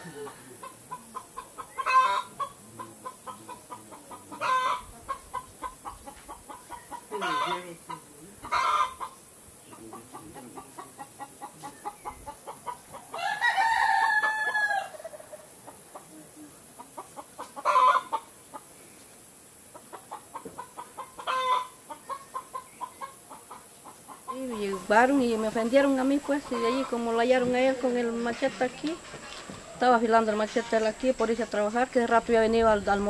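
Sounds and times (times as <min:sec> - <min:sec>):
chickens clucking: 0:00.0 - 0:33.0
rooster crowing: 0:13.1 - 0:15.3.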